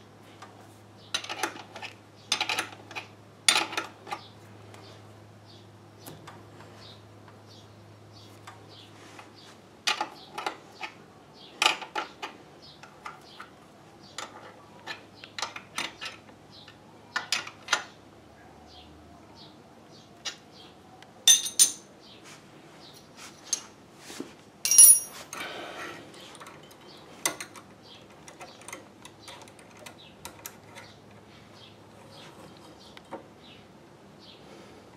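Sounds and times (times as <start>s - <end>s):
ringing metal clink: 21.3s - 21.9s, 24.6s - 25.2s.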